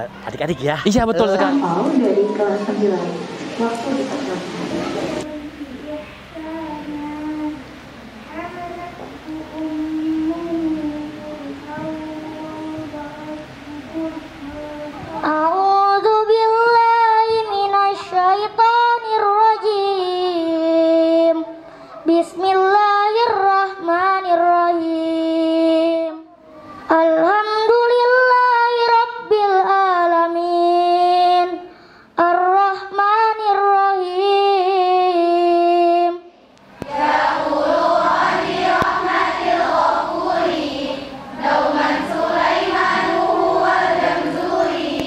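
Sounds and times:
child reciting melodically: 4.2 - 36.2
girls chanting in unison: 36.8 - 45.0.

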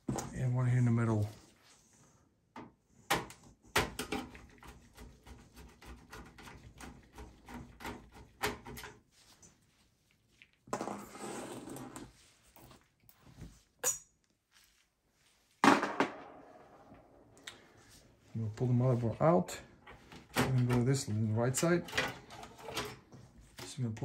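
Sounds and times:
rustling scrape: 9.0 - 13.8.

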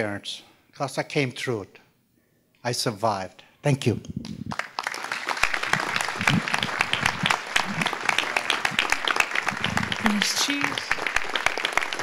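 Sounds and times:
audience applauding: 4.4 - 12.0
voices among clapping: 4.5 - 12.0.

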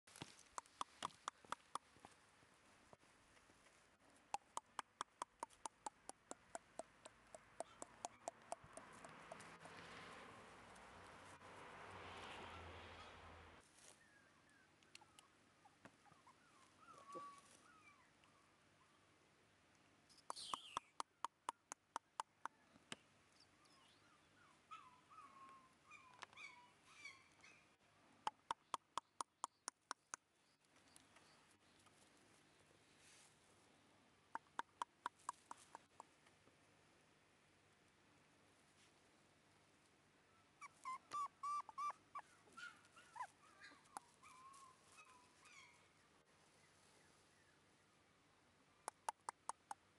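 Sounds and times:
puppy whimpering: 16.0 - 18.0, 40.6 - 45.2.

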